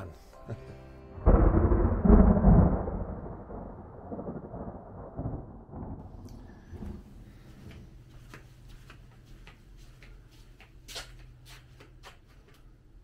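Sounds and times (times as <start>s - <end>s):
thunder clap and rumble: 1.2s - 7.4s.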